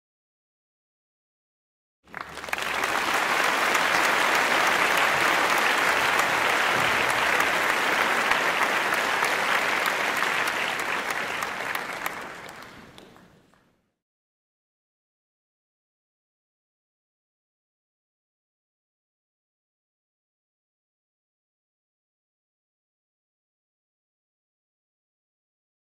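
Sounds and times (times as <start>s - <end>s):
crowd applauding: 2.1s - 13.7s.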